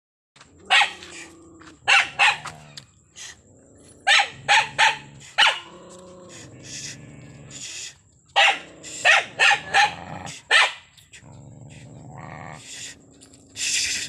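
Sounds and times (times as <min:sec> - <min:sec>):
dog barking angrily: 0:00.6 - 0:02.8, 0:04.0 - 0:06.5, 0:08.3 - 0:12.7
dog growling: 0:00.6 - 0:02.8, 0:03.4 - 0:13.6.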